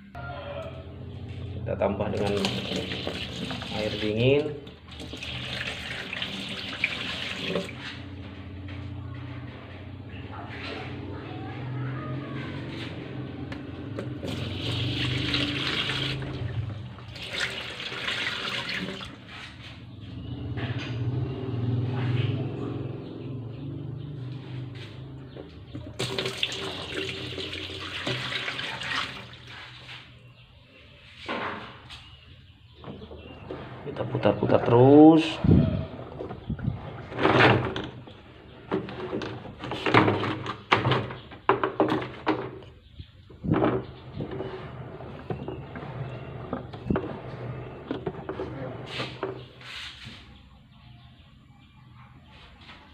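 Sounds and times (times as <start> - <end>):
water pouring into washing machine: 2.2 - 7.8, 14.2 - 19.2, 25.9 - 29.8
water splashes: 14.2 - 19.2.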